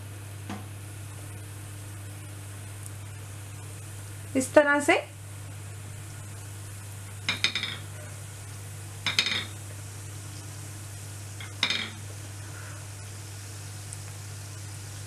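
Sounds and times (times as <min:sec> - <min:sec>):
steady low hum: 0:00.0 - 0:15.0
food clattering and sizzling in oil: 0:07.0 - 0:10.6, 0:11.2 - 0:12.4.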